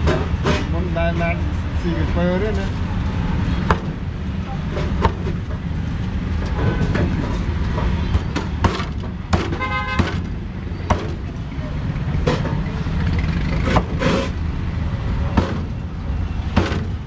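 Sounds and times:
street traffic rumble: 0.0s - 17.0s
vehicle horn toot: 9.6s - 10.2s.

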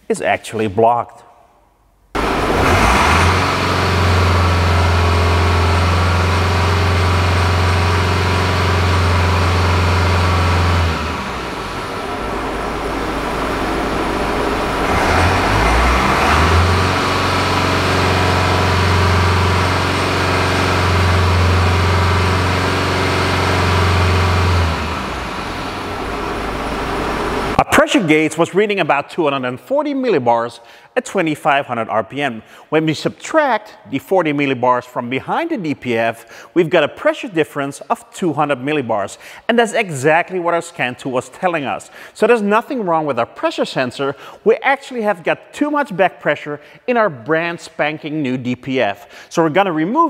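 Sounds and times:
diesel engine fast idle: 2.2s - 27.6s.

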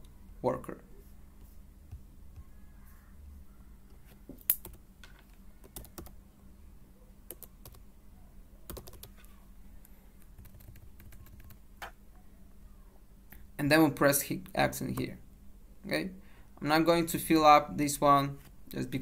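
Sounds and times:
keyboard typing: 4.5s - 4.8s, 5.6s - 6.2s, 7.3s - 7.8s, 8.7s - 9.3s, 10.2s - 12.0s.

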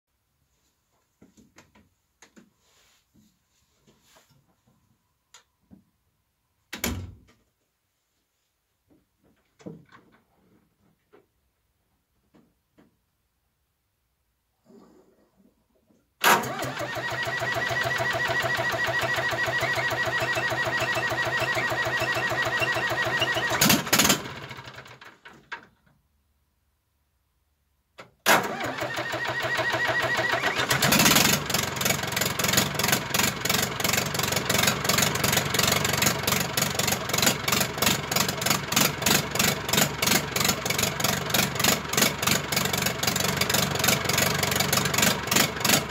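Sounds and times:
diesel engine running: 16.4s - 25.0s, 29.4s - 45.9s.

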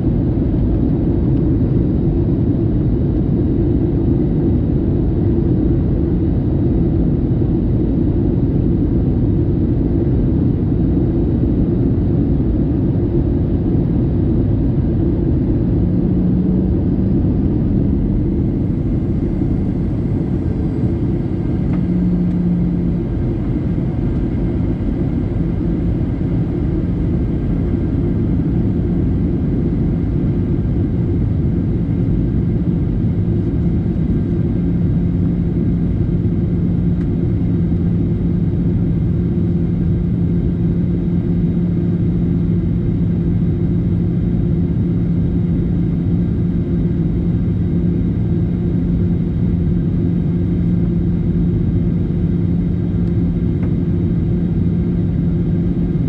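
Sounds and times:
jet engines and airflow rumble: 0.0s - 56.0s
low steady hum: 0.0s - 56.0s.

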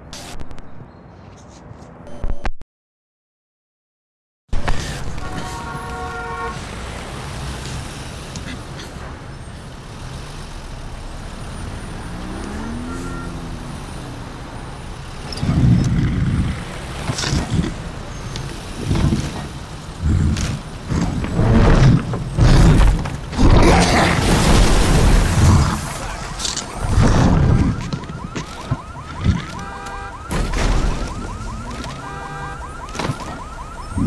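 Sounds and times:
car engines rumbling: 4.6s - 34.0s
car horn honking: 5.0s - 6.6s, 12.2s - 13.5s, 29.2s - 30.5s, 31.2s - 32.9s
engines revving: 5.0s - 34.0s.

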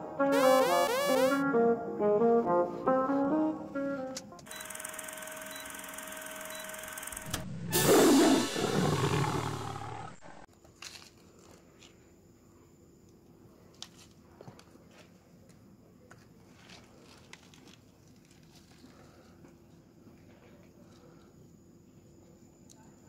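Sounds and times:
roar sound effect: 7.3s - 10.5s.

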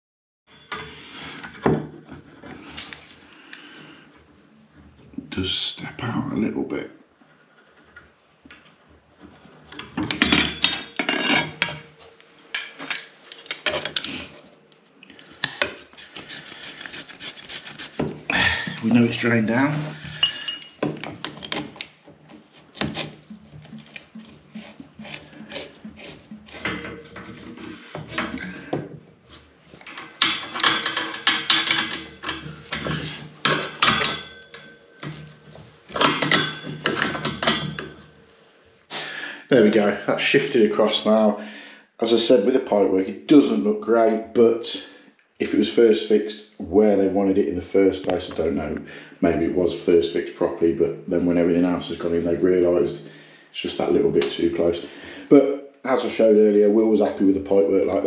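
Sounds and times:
metal pipe scraping and clinking: 0.5s - 3.3s, 7.2s - 14.6s, 15.2s - 38.2s.

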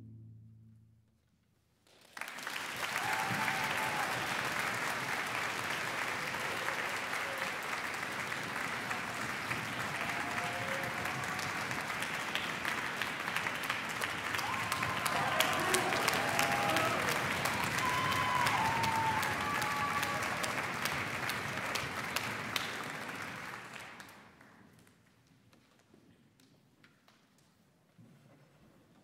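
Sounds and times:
audience applause: 2.0s - 24.6s.

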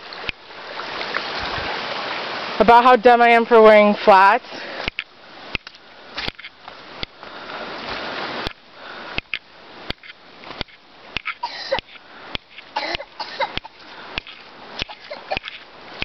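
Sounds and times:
person breathing: 4.4s - 4.9s, 7.2s - 7.9s, 8.7s - 9.2s, 13.8s - 14.4s.

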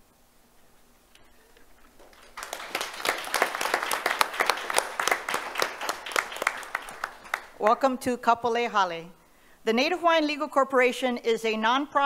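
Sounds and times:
audience clapping: 1.9s - 7.9s.

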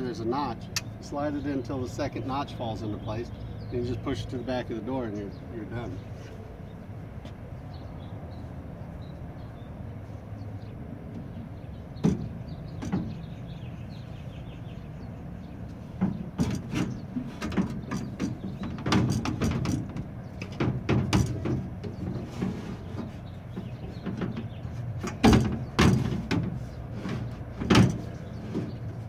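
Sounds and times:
door glass knocking and rattling: 16.0s - 29.0s.

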